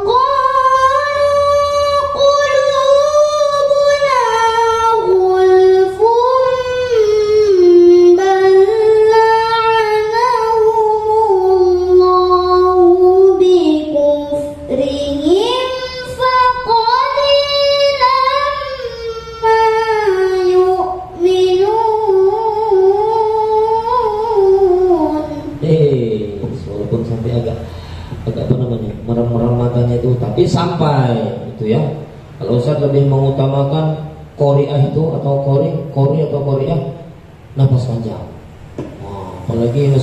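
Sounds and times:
girl chanting into microphone: 0.0 - 25.6.

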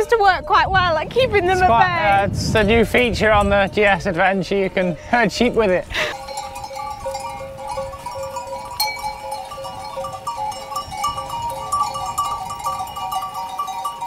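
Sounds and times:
sheep bells ringing: 2.9 - 14.0.

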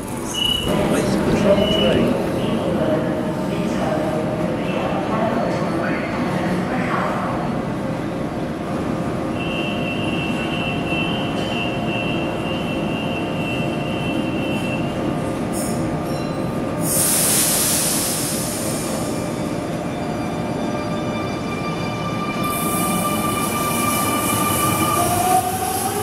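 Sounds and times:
electric train rumbling: 0.0 - 26.0
loud hiss of air: 16.8 - 19.2.

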